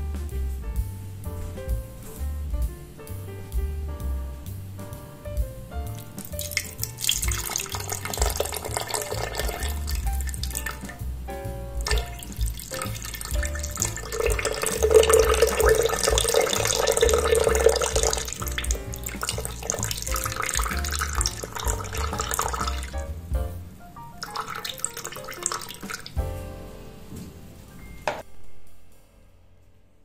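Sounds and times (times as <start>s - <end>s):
background music: 0.0s - 30.0s
juice pouring into a glass jar: 6.6s - 9.8s, 11.9s - 18.4s.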